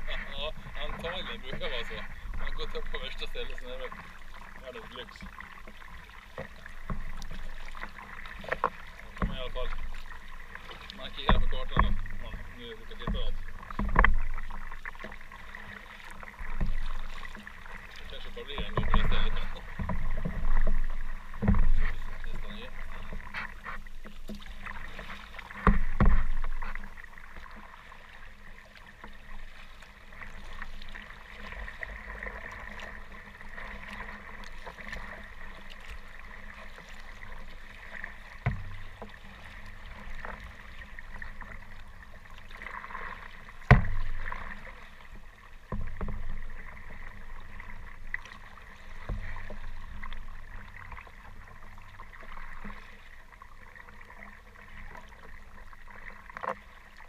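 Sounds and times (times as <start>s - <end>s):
water sloshing around kayak: 0.0s - 57.0s
thumps against boat: 4.9s - 10.1s, 11.0s - 15.2s, 16.2s - 17.5s, 18.1s - 27.2s, 37.9s - 40.5s, 43.6s - 44.6s, 45.7s - 47.7s.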